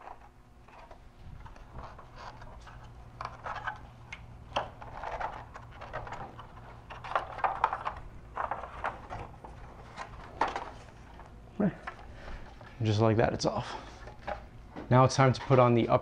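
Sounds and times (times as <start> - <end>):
hard plastic scraping and rattling: 0.0 - 12.7.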